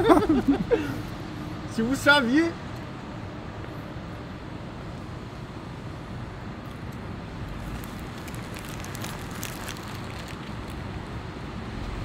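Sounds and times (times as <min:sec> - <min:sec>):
road vehicle rumble: 0:00.0 - 0:12.0
light crackling: 0:07.6 - 0:11.0.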